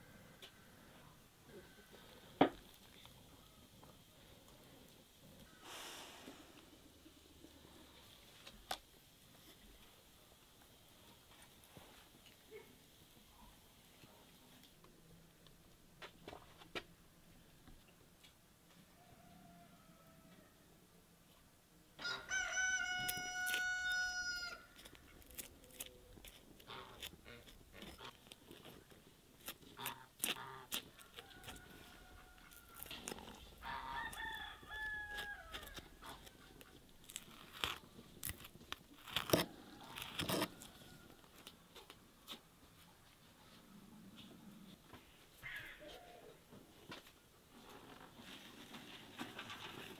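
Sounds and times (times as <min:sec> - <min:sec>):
rooster crowing: 0:19.0 - 0:20.6, 0:22.0 - 0:24.7, 0:33.6 - 0:36.0.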